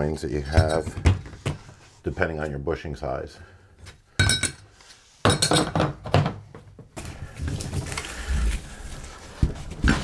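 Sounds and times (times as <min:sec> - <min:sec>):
scraping and handling noise: 0:04.6 - 0:10.0.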